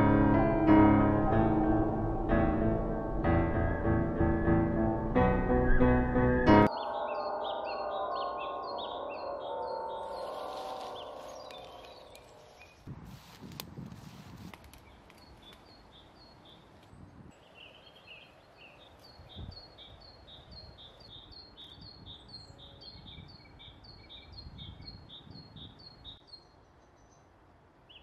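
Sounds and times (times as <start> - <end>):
woodland ambience: 0.0 - 28.0
soft low rustles: 10.2 - 15.6.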